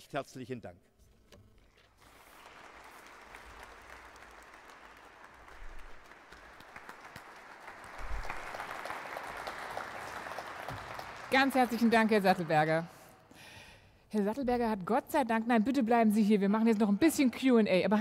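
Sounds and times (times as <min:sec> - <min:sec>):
audience applauding: 0:01.9 - 0:13.1.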